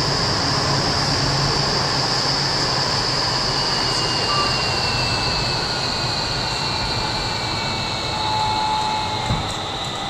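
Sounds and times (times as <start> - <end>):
faint second whine: 0.0 - 10.0
high whine: 0.0 - 10.0.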